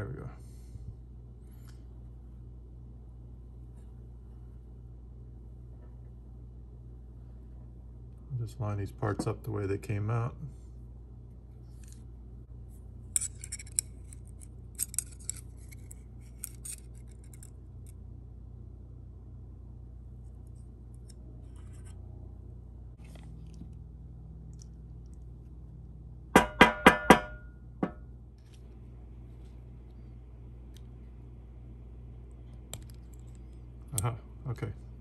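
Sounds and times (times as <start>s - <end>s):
small steel parts clicking: 13.1s - 18.0s.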